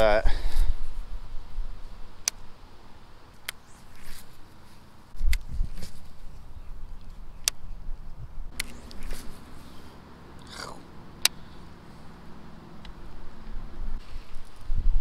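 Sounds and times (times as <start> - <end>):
wind rumble on microphone: 0.0 - 2.6, 5.1 - 9.7, 12.8 - 15.0.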